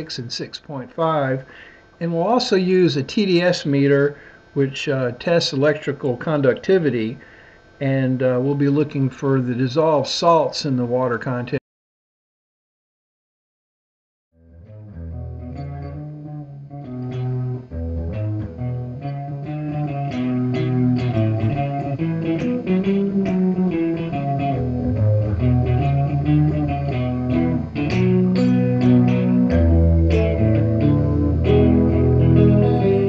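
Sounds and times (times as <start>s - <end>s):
bass line: 14.4s - 33.0s
instrumental guitar music: 14.4s - 33.0s.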